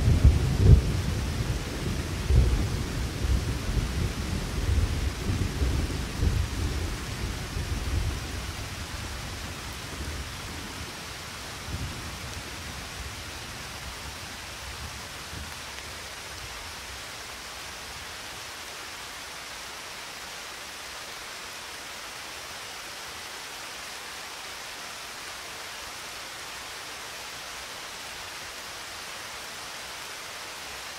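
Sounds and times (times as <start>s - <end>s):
low thunder rumble: 0.0s - 8.5s
rain hissing: 0.0s - 30.9s.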